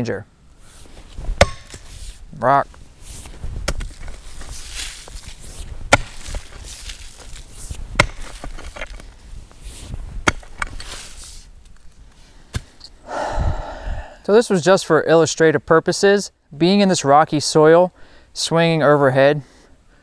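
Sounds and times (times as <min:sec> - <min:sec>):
pick mattock striking rocky soil: 0:01.3 - 0:02.2, 0:03.1 - 0:09.0, 0:09.8 - 0:11.3.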